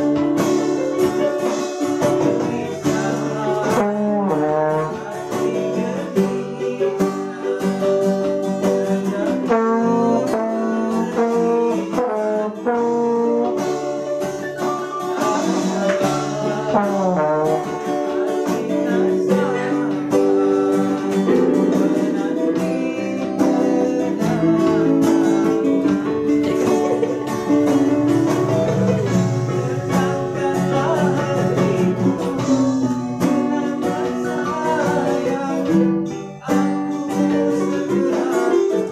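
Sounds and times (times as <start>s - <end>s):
electronic keyboards: 0.0s - 38.9s
strummed acoustic guitar: 0.0s - 38.9s
trombone: 1.6s - 6.0s, 9.4s - 14.2s, 15.4s - 20.4s.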